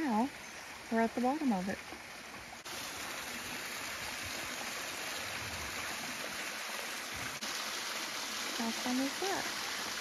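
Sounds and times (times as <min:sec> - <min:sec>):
waterfall splashing: 0:02.6 - 0:10.0.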